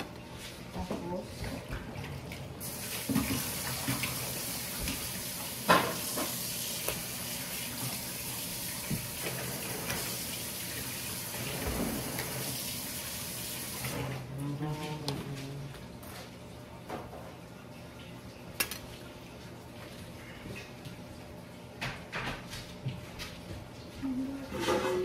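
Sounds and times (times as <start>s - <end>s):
tap water running into sink: 1.5s - 14.2s.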